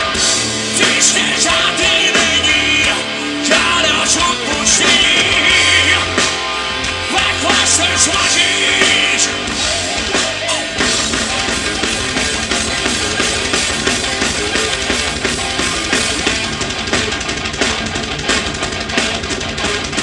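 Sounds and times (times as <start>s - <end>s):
live rock band playing: 0.0s - 20.0s.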